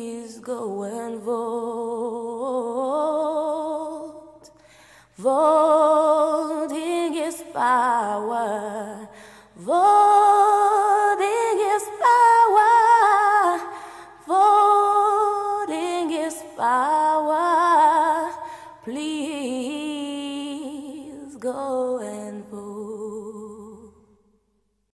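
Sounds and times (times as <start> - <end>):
solo voice singing with vibrato: 0.0 - 24.0
breaths: 4.4 - 5.2, 9.0 - 9.6, 13.6 - 14.2, 18.4 - 18.9.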